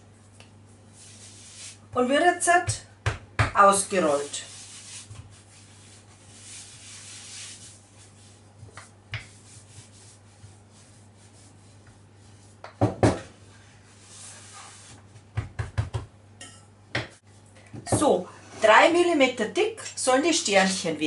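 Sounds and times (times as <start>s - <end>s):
rolling pin rubbing dough: 0.8s - 2.7s, 3.6s - 15.7s.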